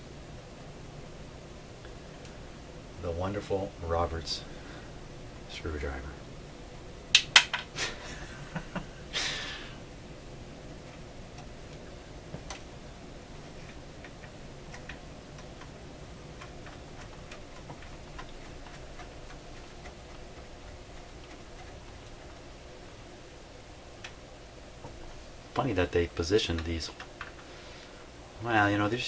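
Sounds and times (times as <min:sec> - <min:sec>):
faint irregular ticks: 0:13.5 - 0:22.6.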